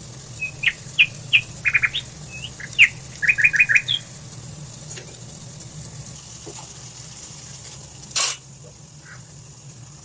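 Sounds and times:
steady low hum: 0.0s - 10.0s
small bird chirping: 0.3s - 4.1s.

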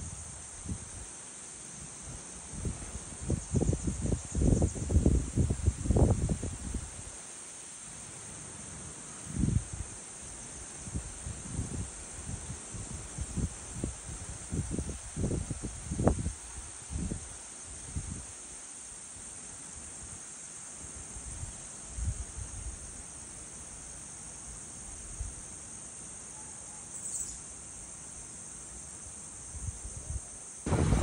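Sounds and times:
insect chorus: 0.0s - 31.0s
low thumps: 30.7s - 31.0s.

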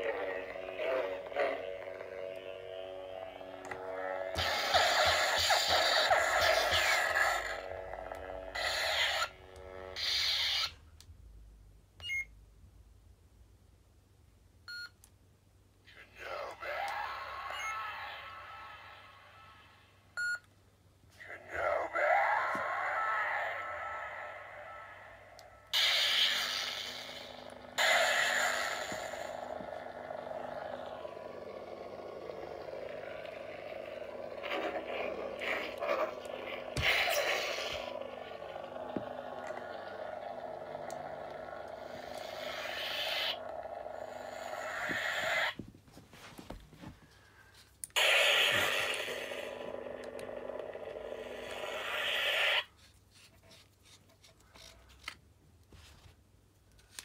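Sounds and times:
steady electronic hum: 0.0s - 10.5s, 15.9s - 52.6s
lightsaber ignition sound: 0.0s - 10.8s, 21.5s - 45.6s, 47.9s - 52.7s
lightsaber swing sounds: 0.0s - 10.8s, 23.5s - 45.6s.

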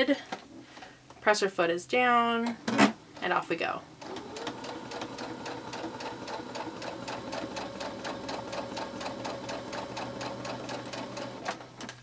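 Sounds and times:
sewing machine stitching: 4.0s - 12.0s.

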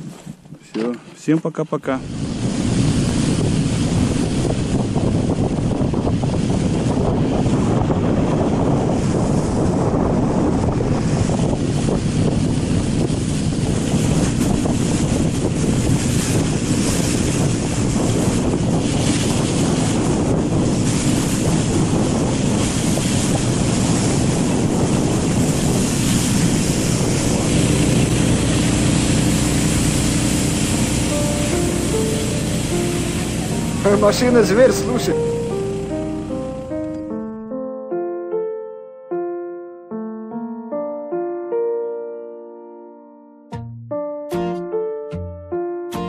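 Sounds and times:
wind buffeting microphone: 0.0s - 0.8s, 1.7s - 37.4s
snow hissing: 2.0s - 37.2s
plastic sleds sliding over snow: 12.8s - 32.1s
towing vehicle engine running: 25.0s - 37.0s.

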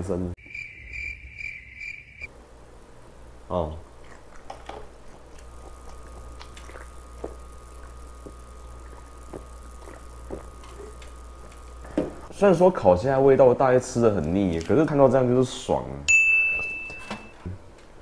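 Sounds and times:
person gulping: 3.7s - 11.6s.

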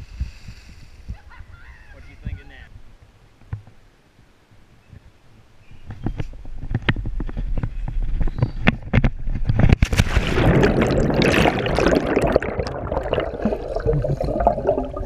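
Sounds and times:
wind rumble on microphone: 0.0s - 3.6s, 4.8s - 12.0s
plunge into water: 9.6s - 15.0s
underwater churning bubbling water: 9.8s - 15.0s.

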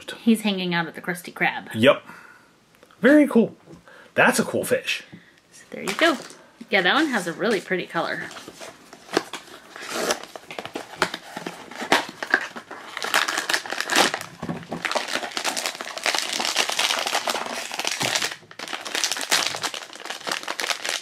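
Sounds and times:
foil bag crinkling and rustling: 5.8s - 21.0s.

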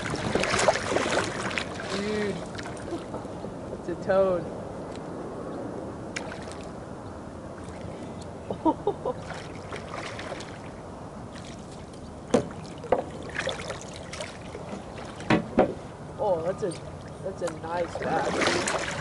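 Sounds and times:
water lapping around kayak: 0.0s - 3.9s, 4.8s - 19.0s
sharp knocks: 15.3s - 15.8s.

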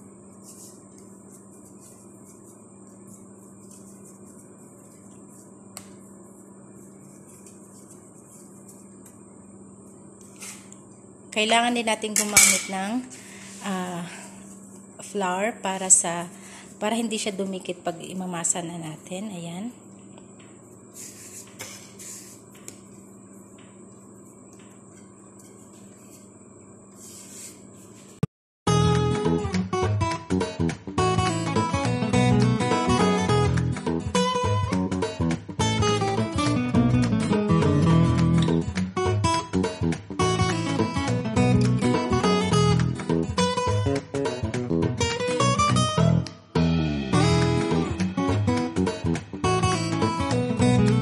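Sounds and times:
steady low hum: 0.0s - 28.2s
dough handling noises: 0.1s - 10.8s, 20.3s - 28.2s
strummed acoustic guitar music: 28.7s - 51.0s
low hum: 46.5s - 49.9s.

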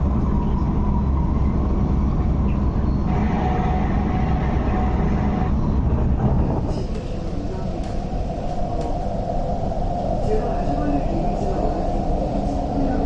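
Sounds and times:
train wheels rumbling: 0.0s - 13.0s
traction motor whine: 3.1s - 5.5s.

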